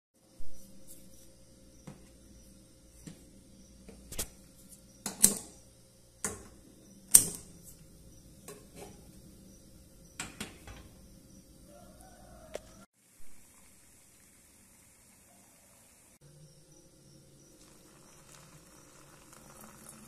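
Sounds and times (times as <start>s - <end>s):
gas burner clicking: 5.1s - 5.6s, 6.2s - 7.9s
metal pot clanking on grate: 6.2s - 7.6s, 8.4s - 9.2s, 10.2s - 11.0s.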